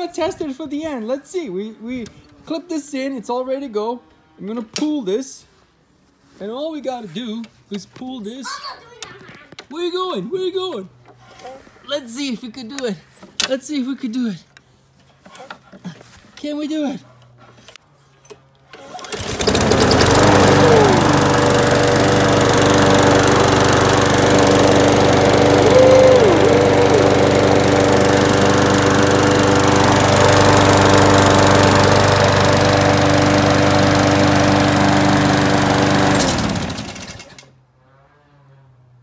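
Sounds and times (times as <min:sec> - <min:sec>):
lawn mower engine running: 0:18.7 - 0:37.5.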